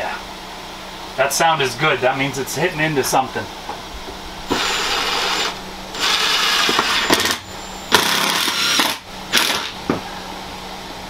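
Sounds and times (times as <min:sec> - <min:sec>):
cordless drill driving a screw: 0:04.5 - 0:09.8.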